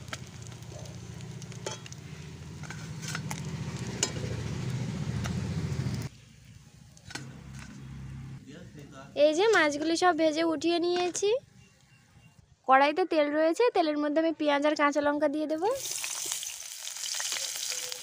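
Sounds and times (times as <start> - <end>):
fish sizzling in hot oil: 0.0 - 2.5, 15.8 - 18.0.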